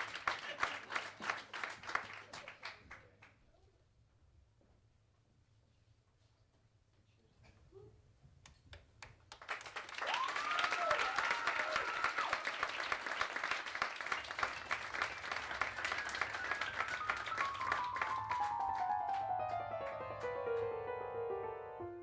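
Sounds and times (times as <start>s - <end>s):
audience applauding: 0.0s - 3.2s, 9.0s - 20.9s
long rising cheer: 9.9s - 19.5s.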